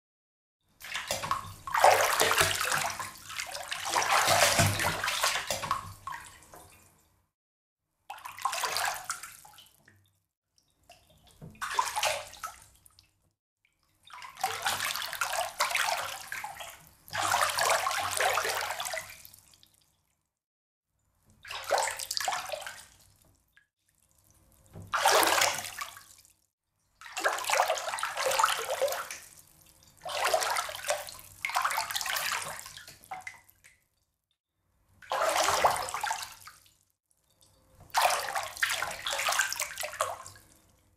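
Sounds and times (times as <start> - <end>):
bathwater splashing in a tub: 0.8 - 7.0, 8.1 - 10.1, 10.8 - 13.2, 14.0 - 19.8, 21.4 - 23.2, 24.0 - 26.4, 27.0 - 33.8, 35.0 - 36.8, 37.8 - 40.8.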